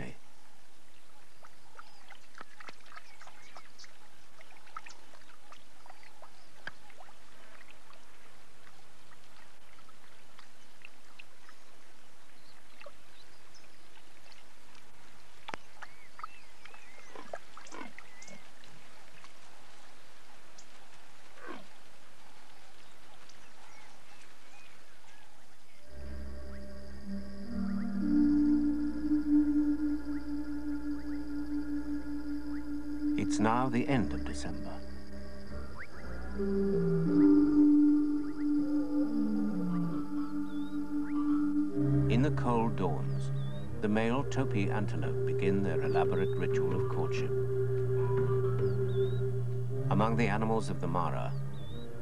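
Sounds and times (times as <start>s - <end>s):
animals lapping water: 1.1s - 25.5s
high chirps and whistles: 25.9s - 52.0s.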